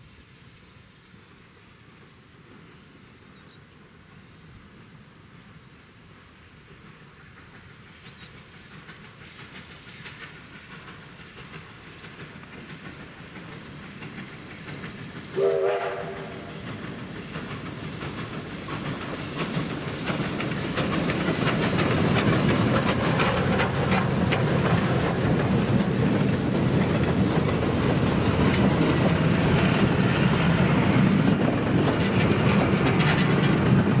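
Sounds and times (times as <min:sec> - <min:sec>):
train rumbling and clattering over rails: 0:00.0 - 0:34.0
steam whistle blast: 0:15.4 - 0:16.5.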